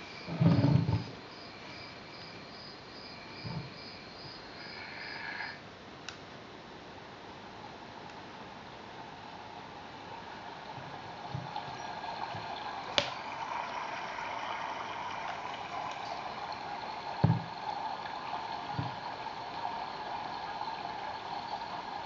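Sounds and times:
recorded babbling stream: 6.9 - 22.0
low knocks from lamp handling: 17.2 - 17.5.

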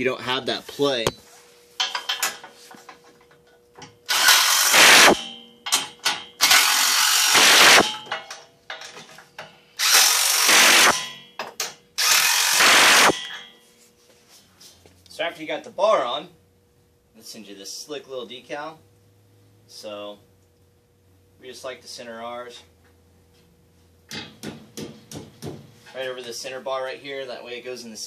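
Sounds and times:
ratchet wrench clicking: 4.1 - 5.2, 6.4 - 7.8, 9.8 - 11.0, 12.0 - 13.1.

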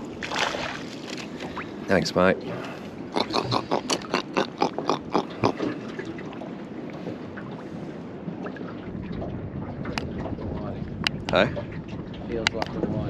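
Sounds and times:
wind: 0.0 - 13.0
fish grunting: 3.1 - 5.9.

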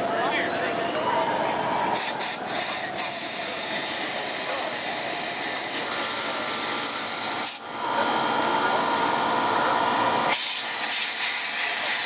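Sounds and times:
gas hissing from jet rig: 1.9 - 7.6, 10.3 - 12.0.

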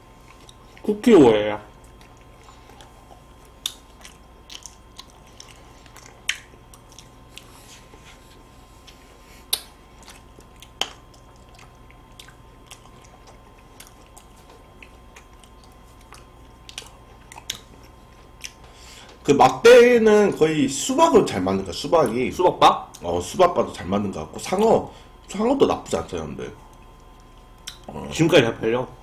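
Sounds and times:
quiet chewing: 0.0 - 1.0, 1.6 - 19.3, 26.6 - 28.0
sharp mouth clicks and bites: 1.8 - 7.5, 8.8 - 18.6, 27.0 - 27.9.

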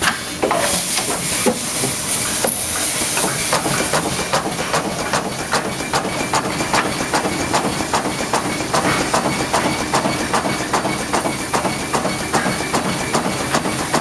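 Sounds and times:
turntable fixture hissing: 0.2 - 3.9
rapid irregular clicks and rattles: 2.5 - 14.0.

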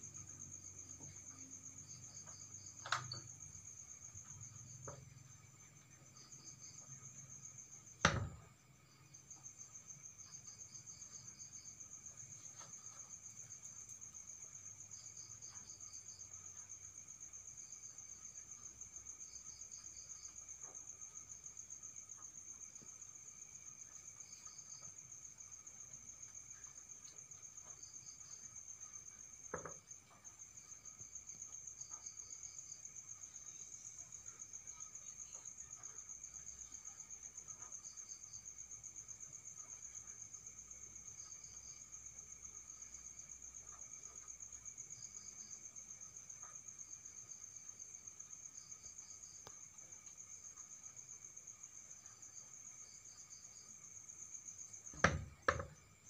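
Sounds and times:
insects trilling: 0.0 - 56.0
sharp knock: 8.0 - 8.5, 55.0 - 55.7.

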